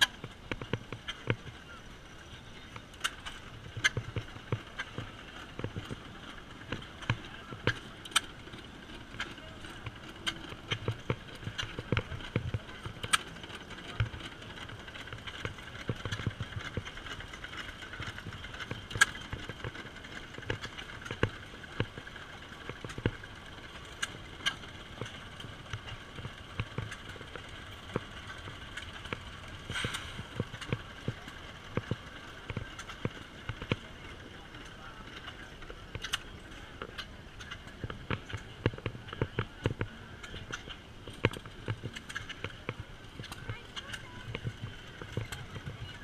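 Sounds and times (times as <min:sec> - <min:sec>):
gas engine exhaust pops: 0:29.1 - 0:30.8.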